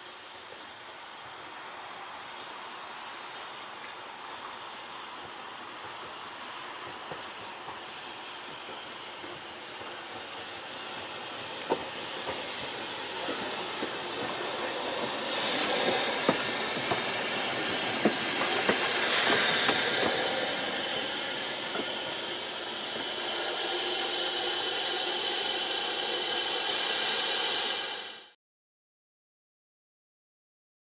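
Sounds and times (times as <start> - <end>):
steam locomotive hissing: 0.0 - 28.4
wheels clicking on track: 5.2 - 28.0.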